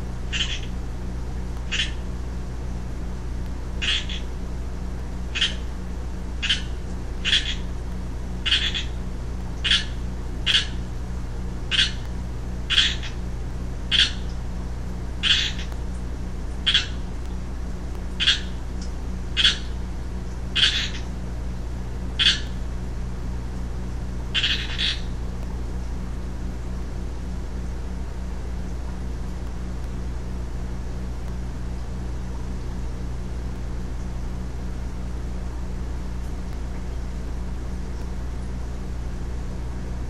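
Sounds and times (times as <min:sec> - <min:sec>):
steady low hum: 0:00.0 - 0:40.0
treefrog calling: 0:00.2 - 0:00.8, 0:01.6 - 0:02.1, 0:03.8 - 0:04.4, 0:05.3 - 0:05.8, 0:06.4 - 0:07.8, 0:08.4 - 0:10.9, 0:11.7 - 0:13.3, 0:13.9 - 0:14.4, 0:15.2 - 0:15.9, 0:16.6 - 0:17.3, 0:18.2 - 0:21.2, 0:22.2 - 0:22.6, 0:24.3 - 0:25.2.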